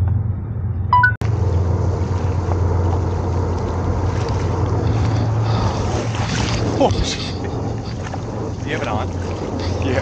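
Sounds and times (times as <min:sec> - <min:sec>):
steady low hum: 0:00.0 - 0:10.0
brief beep: 0:00.9 - 0:01.2
wind buffeting microphone: 0:01.3 - 0:10.0.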